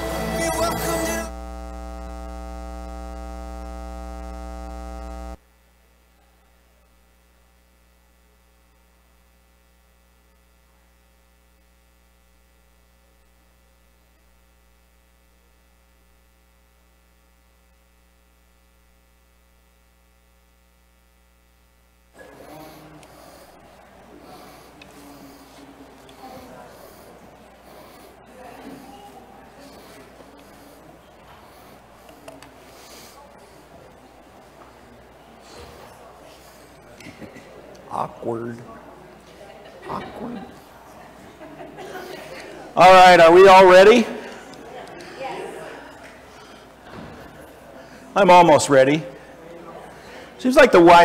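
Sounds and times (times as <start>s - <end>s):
music: 0.0s - 1.3s
electrical mains hum: 0.0s - 51.0s.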